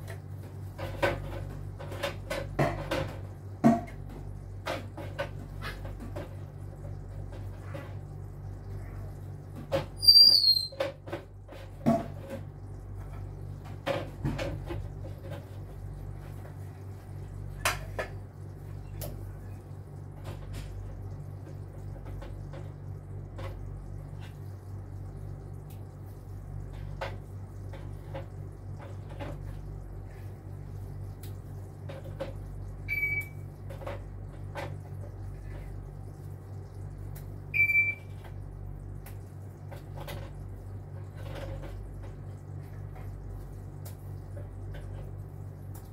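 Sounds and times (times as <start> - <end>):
steady low hum: 0.0 - 10.0, 10.8 - 45.9
short high squeak: 10.0 - 10.8.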